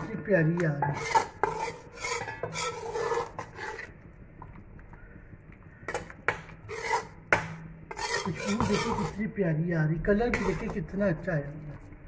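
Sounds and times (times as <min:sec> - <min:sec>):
metal spoon scraping a pot: 0:00.0 - 0:04.1, 0:05.8 - 0:09.4, 0:10.2 - 0:11.0
faint low hum: 0:03.8 - 0:12.0.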